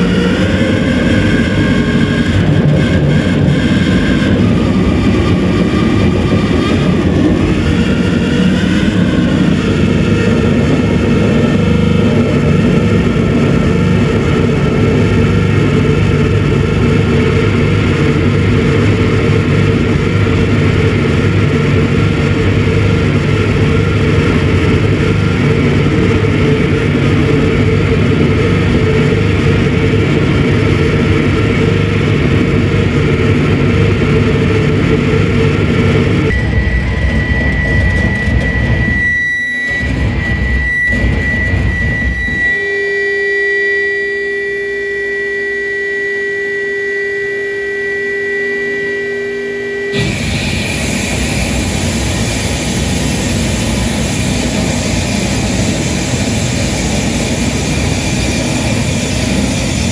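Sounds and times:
wavering high tones: 36.3s - 59.9s
distorted electronic noise: 43.8s - 59.9s.

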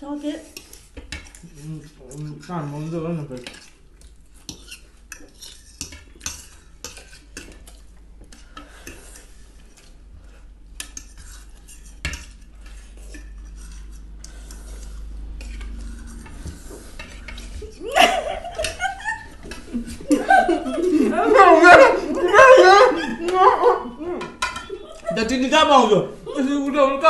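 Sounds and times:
steady low hum: 7.8s - 25.2s
forks clinking on plates: 24.2s - 25.0s.

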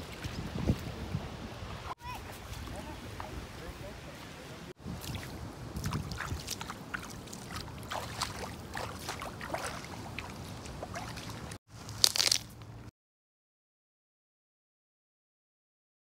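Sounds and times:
feet wading splashes: 4.8s - 12.4s
water lapping on pebble shore: 4.8s - 12.5s.

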